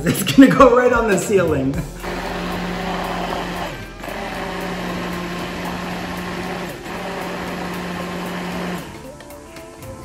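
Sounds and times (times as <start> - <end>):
immersion blender motor: 2.0 - 9.1.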